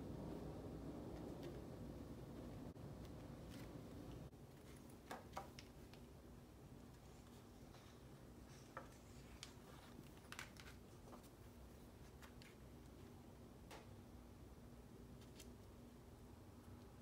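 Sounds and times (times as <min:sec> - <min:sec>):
paper rustling: 0:06.9 - 0:13.1.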